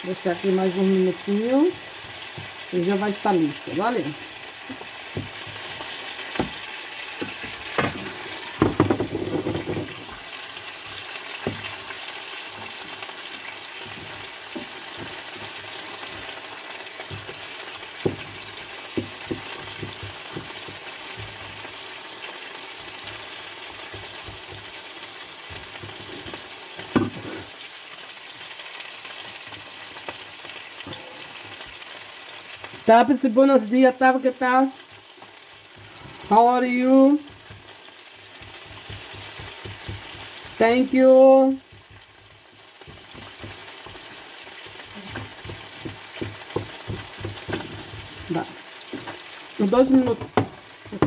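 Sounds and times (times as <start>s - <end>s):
fish sizzling on a griddle: 0.0s - 51.0s.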